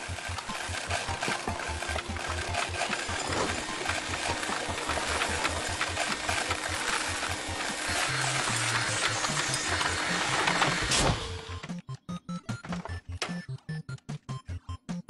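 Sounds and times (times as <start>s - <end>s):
vacuum cleaner hissing: 0.0s - 11.5s
background music with low beat: 11.4s - 15.0s.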